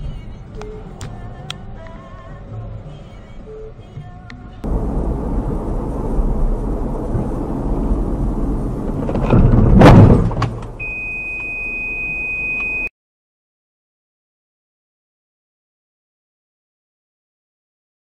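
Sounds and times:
car engine and road noise: 0:00.0 - 0:11.9
loud car crash: 0:04.7 - 0:10.6
steady high-pitched beep: 0:10.8 - 0:12.9.

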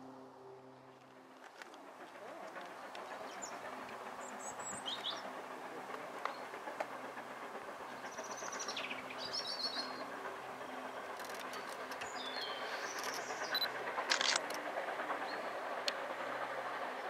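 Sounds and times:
distant steam locomotive running: 0:00.0 - 0:17.0
small birds chirping: 0:02.1 - 0:06.6, 0:07.8 - 0:13.7.

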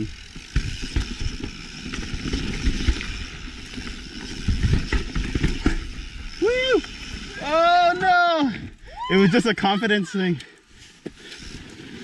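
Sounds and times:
bike knocking and rattling: 0:00.0 - 0:08.6
bike tyres rumbling over rock: 0:00.0 - 0:08.6.

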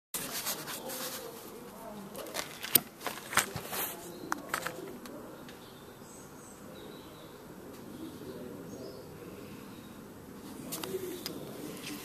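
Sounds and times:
handling clicks and knocks: 0:02.2 - 0:05.2
faint bird chirps: 0:05.2 - 0:10.1.

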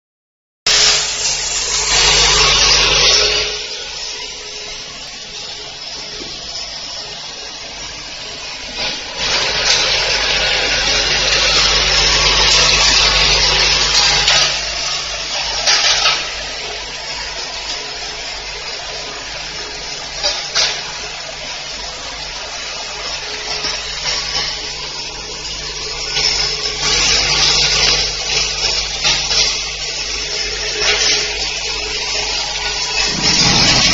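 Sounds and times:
low machine hum: 0:32.7 - 0:33.9.

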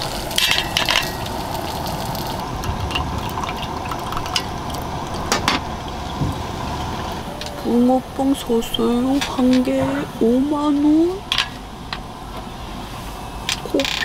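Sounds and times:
hot water trickling into filter: 0:00.0 - 0:07.3.

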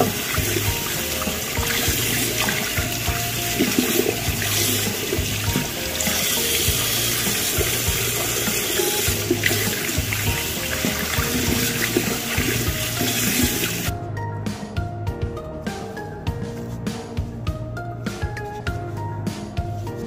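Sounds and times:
tap water running into sink: 0:00.0 - 0:13.9.

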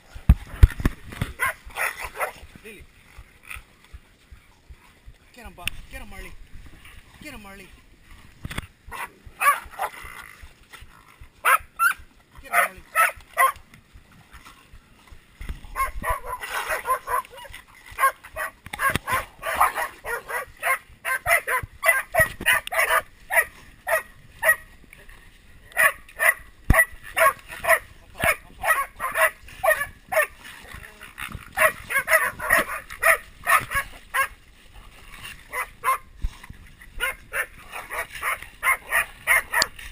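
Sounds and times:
dogs barking and yipping: 0:01.3 - 0:02.4, 0:08.9 - 0:10.0, 0:11.4 - 0:13.6, 0:15.7 - 0:24.7, 0:25.7 - 0:30.7, 0:31.5 - 0:34.4, 0:35.3 - 0:36.1, 0:37.0 - 0:39.9.

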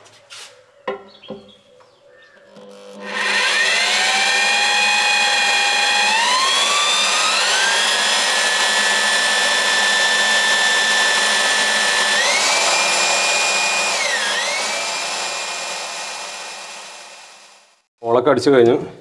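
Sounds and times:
electric drill whining: 0:02.5 - 0:17.9.

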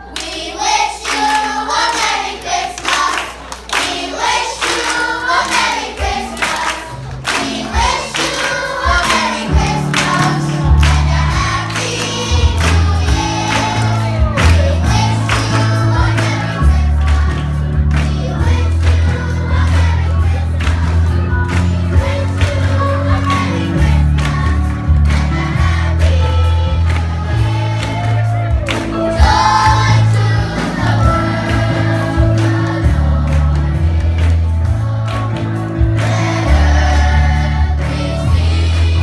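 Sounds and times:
children's choir singing: 0:00.0 - 0:39.0
hand claps: 0:01.0 - 0:16.4, 0:27.8 - 0:29.0.

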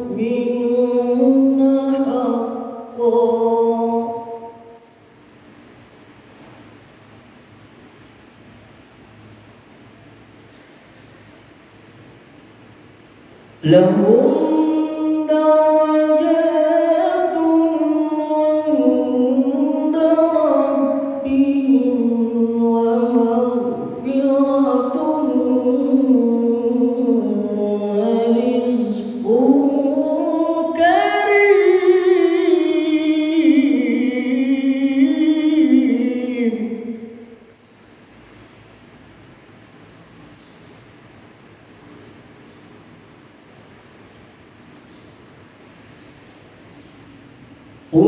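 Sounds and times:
man chanting into a microphone: 0:00.0 - 0:04.7, 0:13.6 - 0:37.2.

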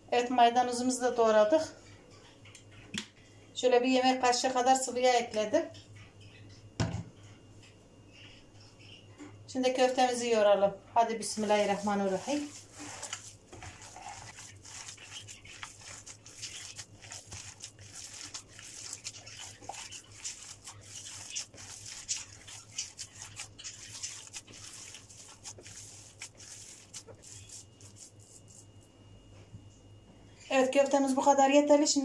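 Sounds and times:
hands squelching meat mixture: 0:11.2 - 0:28.9.

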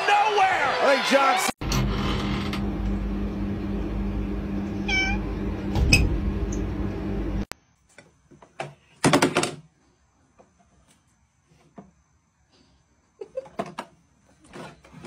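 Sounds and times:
cat meowing: 0:04.8 - 0:05.2.

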